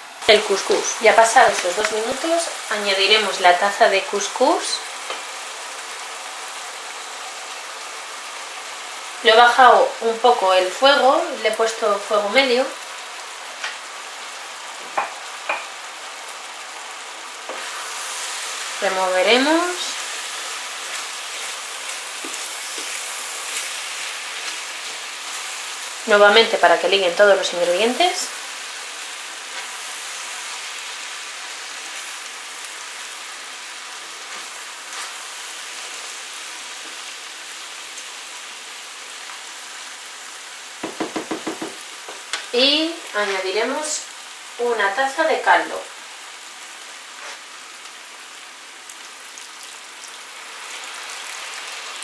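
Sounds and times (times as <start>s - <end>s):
food sizzling in frying pan: 0.0s - 52.0s
wooden spoon stirring: 20.1s - 25.8s.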